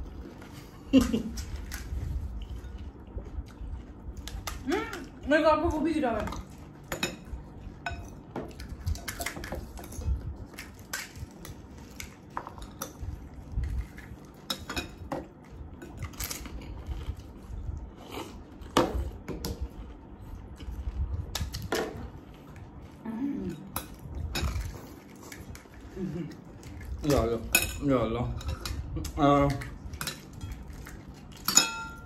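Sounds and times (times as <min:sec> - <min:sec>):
tableware clinking and clattering: 0:31.4 - 0:32.0.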